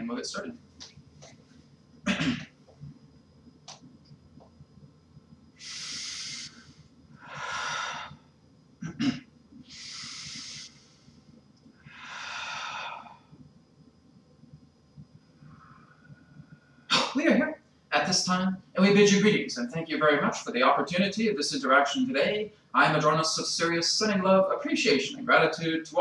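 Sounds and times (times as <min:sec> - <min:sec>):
man breathing deeply: 0:05.6 - 0:08.3, 0:09.6 - 0:11.2, 0:11.8 - 0:13.4.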